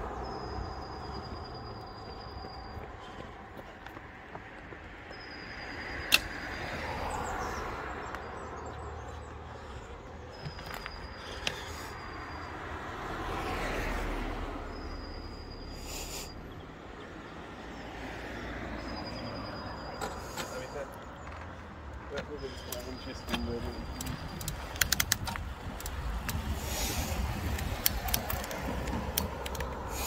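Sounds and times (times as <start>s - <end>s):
cars passing: 0.0s - 30.0s
bicycle tyres on pavement: 6.5s - 14.0s, 22.2s - 30.0s
low rumble of wind: 23.0s - 30.0s.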